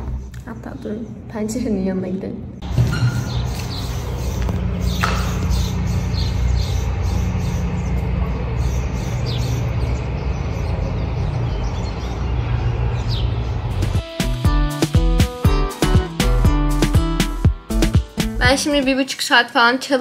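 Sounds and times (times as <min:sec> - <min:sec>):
steady low hum: 0:00.0 - 0:14.0
birds chirping: 0:00.0 - 0:20.0.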